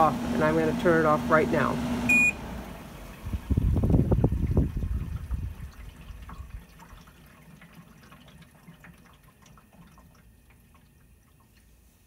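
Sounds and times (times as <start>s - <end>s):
fan low hum: 0.0s - 12.0s.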